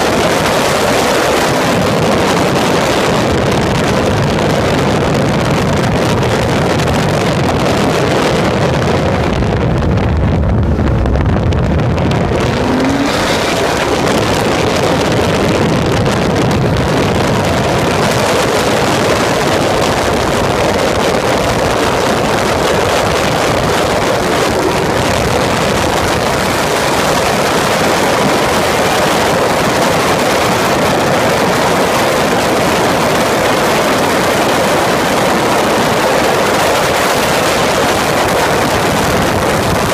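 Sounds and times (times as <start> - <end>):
wind rush on microphone: 0.0 - 39.9
race car engine under load: 11.3 - 16.4.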